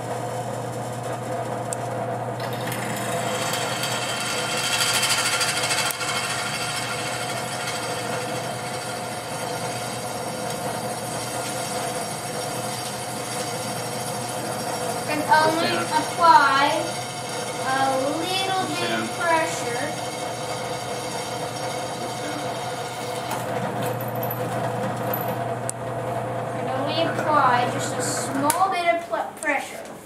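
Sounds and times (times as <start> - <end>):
drill press motor hum: 0.0 - 28.6
drill bit cutting metal: 2.4 - 24.8.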